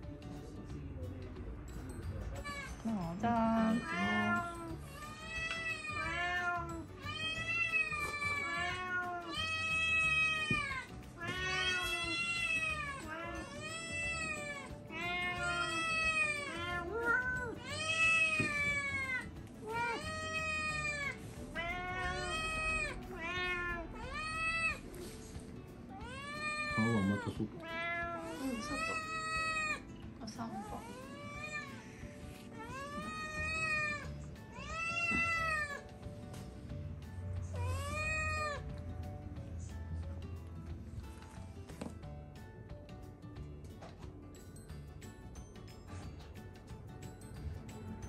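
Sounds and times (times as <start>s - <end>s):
cats meowing: 3.4s - 25.2s, 25.8s - 36.0s, 37.4s - 38.8s.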